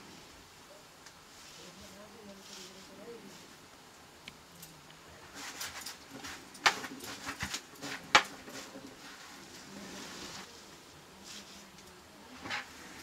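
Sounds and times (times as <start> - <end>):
leaves rustling from bucket: 1.3 - 3.6, 5.2 - 13.0.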